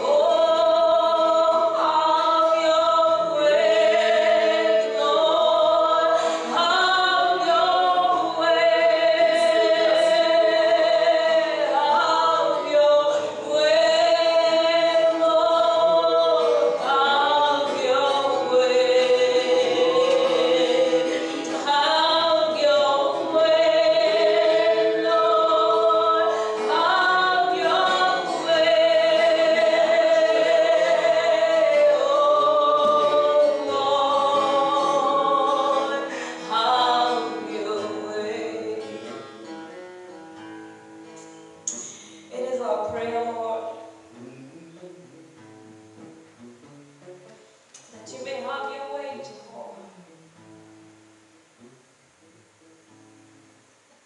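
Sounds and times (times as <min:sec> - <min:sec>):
slow worship singing: 0:00.0 - 0:39.7
acoustic guitar: 0:00.0 - 0:54.0.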